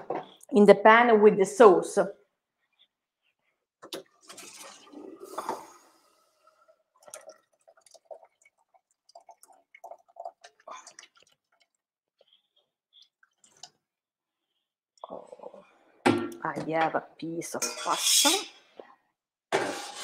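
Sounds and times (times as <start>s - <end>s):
water pouring and splashing: 4.0s - 12.4s.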